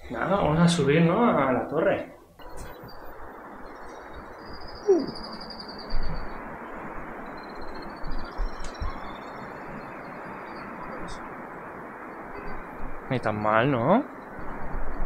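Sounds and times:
wind rushing: 0.0 - 15.0
falling bird call: 2.5 - 13.1.

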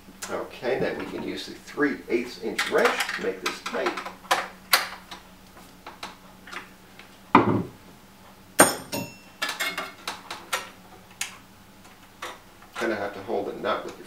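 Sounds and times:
metal hand tools clinking: 8.6 - 9.9.

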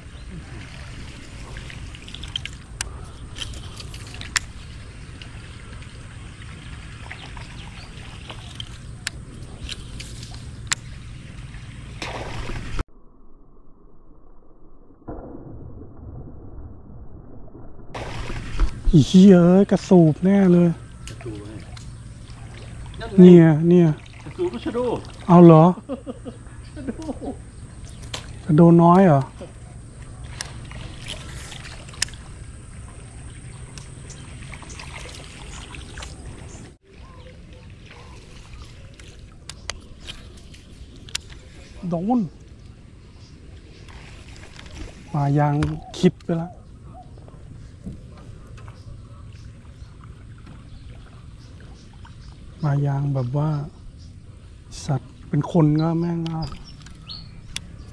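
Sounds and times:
boat motor humming: 0.0 - 12.8, 18.0 - 52.6, 53.7 - 57.9.

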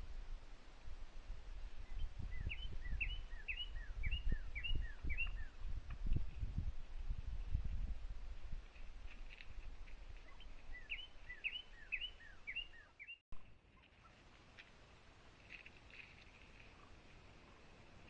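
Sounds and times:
faint bird chirps: 1.7 - 5.7, 10.0 - 14.2
songbird singing whistled notes: 1.8 - 5.6, 10.2 - 13.2.

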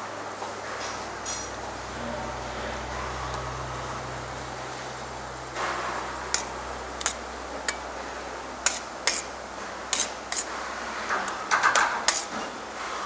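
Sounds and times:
metal spoon clinking on a plate: 6.3 - 7.8, 8.6 - 9.3, 11.3 - 12.3.

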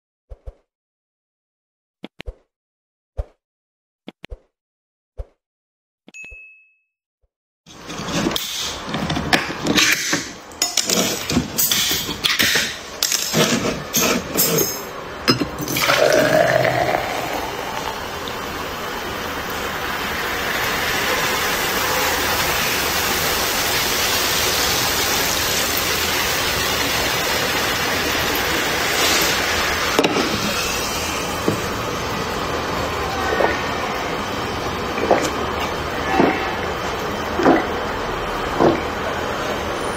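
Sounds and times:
soda pouring into glass: 15.6 - 31.7
soda fizzing: 15.6 - 32.9.

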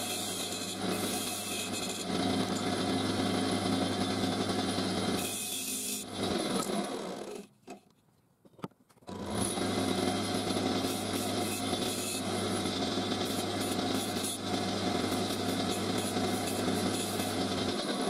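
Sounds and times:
turning tool scraping wood: 0.0 - 2.7, 10.1 - 18.0
lathe motor humming: 9.2 - 18.0.

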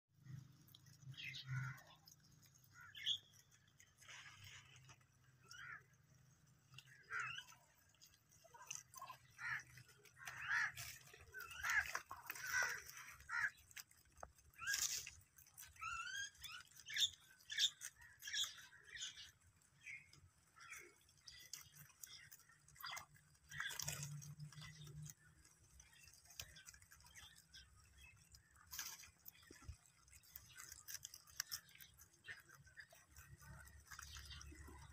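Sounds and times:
rabbits chewing: 0.1 - 34.9
bird chirps and calls: 1.0 - 4.9, 15.7 - 25.1.

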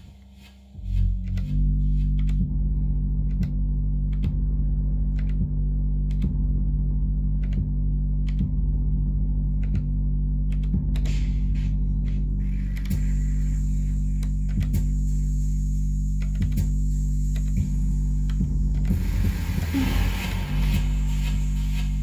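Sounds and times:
drum machine low drone: 0.0 - 22.0
burst of hiss: 18.9 - 22.0.

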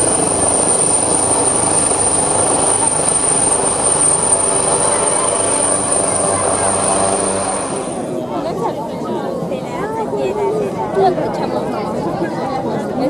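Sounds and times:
helicopter hovering: 0.0 - 8.4.

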